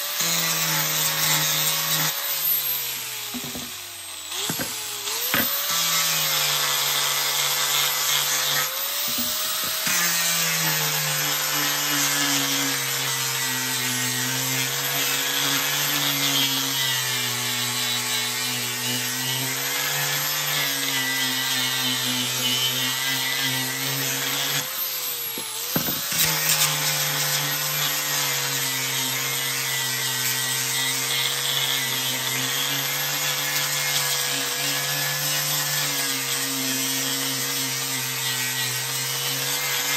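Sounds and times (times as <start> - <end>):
angle grinder motor whine: 0.0 - 13.2, 19.4 - 28.5
abrasive disc rasping on wood: 0.0 - 39.9.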